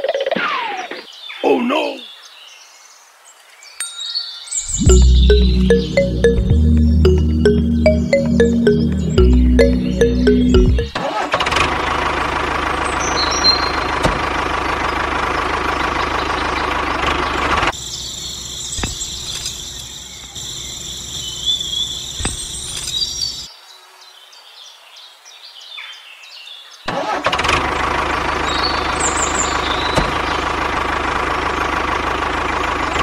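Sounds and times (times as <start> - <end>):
tractor engine running: 9.0 - 17.7, 26.9 - 33.0.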